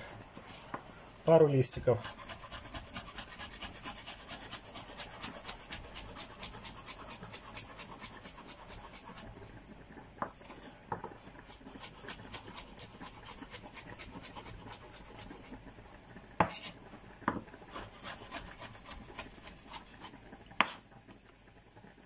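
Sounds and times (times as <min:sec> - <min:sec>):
knife chopping on wooden board: 0:16.4 - 0:20.8.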